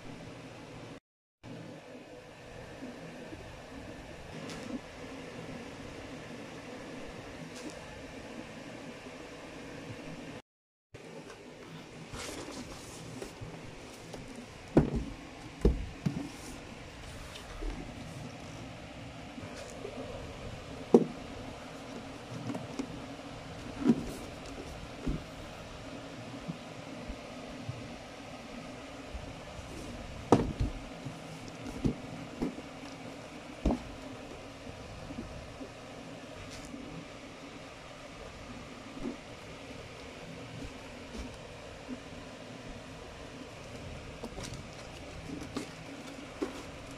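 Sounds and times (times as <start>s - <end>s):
dull knocks of box on floor: 30.3s - 30.7s.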